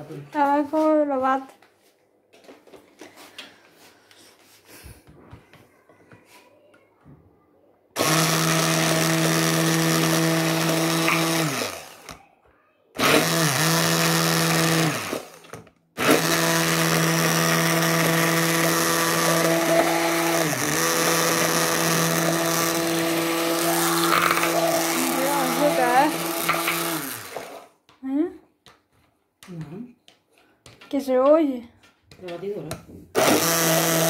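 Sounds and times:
stick blender motor: 8.0 - 12.2, 13.0 - 27.8, 33.1 - 34.0.

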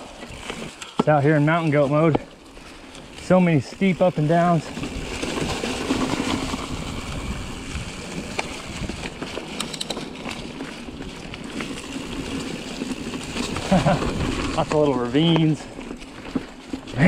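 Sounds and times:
bike clicks and rattles: 0.0 - 17.0
tyres rolling over dirt and leaves: 0.0 - 17.0
wind buffeting microphone: 4.7 - 9.4.

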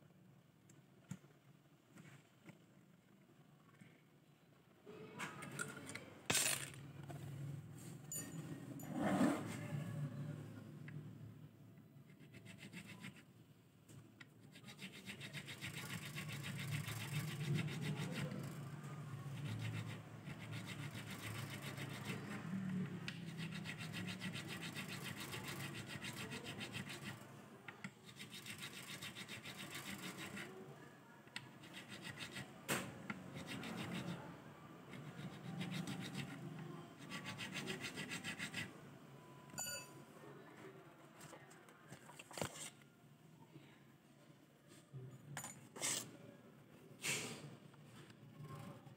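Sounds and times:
metal file rasping: 12.1 - 13.2, 14.4 - 27.2, 28.0 - 30.6, 31.6 - 32.5, 33.2 - 34.3, 34.9 - 38.7.

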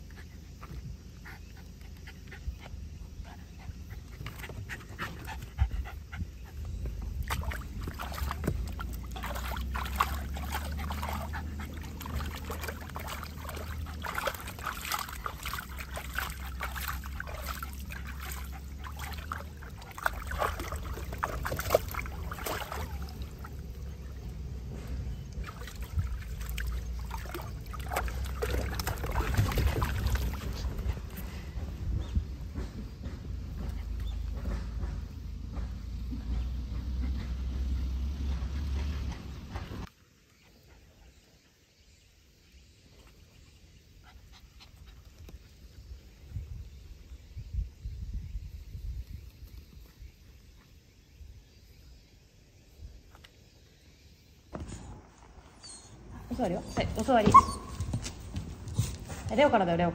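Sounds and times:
dog panting: 0.0 - 7.2, 8.8 - 21.6, 36.5 - 39.9, 55.6 - 59.5
water sloshing in a plastic tub: 0.0 - 33.0, 54.5 - 59.9.

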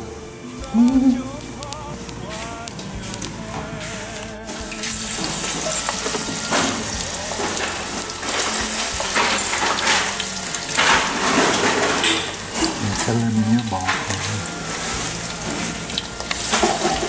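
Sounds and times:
spoon stirring wet batter in bowl: 4.8 - 17.0.

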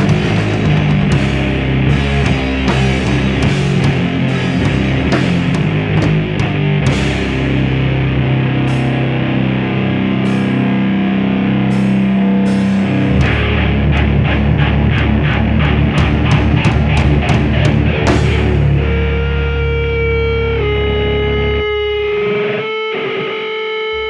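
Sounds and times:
drum kit hits: 0.0 - 7.8, 11.7 - 18.8
distorted electric guitar and bass: 0.0 - 24.0.

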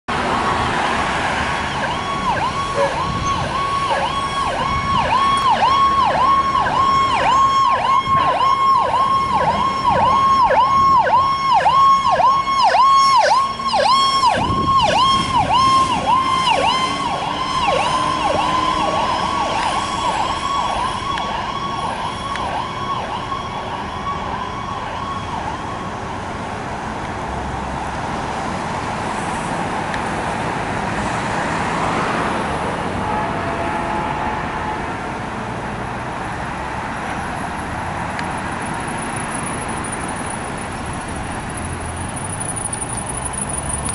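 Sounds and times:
road traffic: 0.0 - 43.9
ambulance siren yelping: 0.4 - 26.0.

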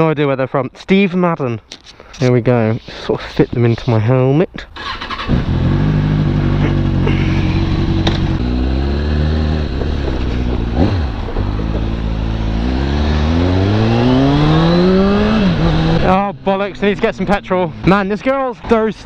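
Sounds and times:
motorcycle engine accelerating: 4.8 - 18.3.

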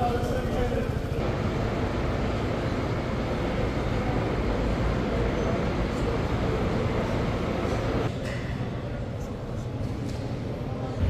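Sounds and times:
murmur of many voices: 0.0 - 11.0.

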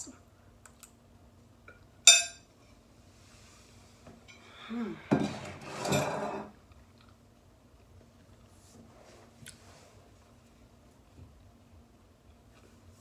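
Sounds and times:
person humming: 4.5 - 5.1.

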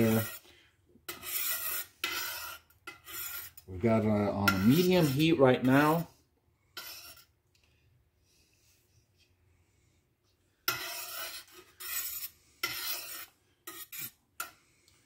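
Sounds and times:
ladle scraping a steel pot: 0.0 - 0.5, 1.1 - 6.1, 6.7 - 7.3, 10.6 - 14.6.

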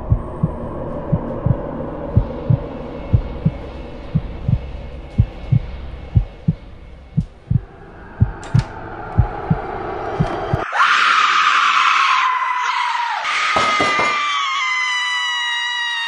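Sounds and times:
heartbeat thumps: 0.0 - 10.6
rising drone: 0.0 - 11.8
shrill scream: 10.6 - 16.0.

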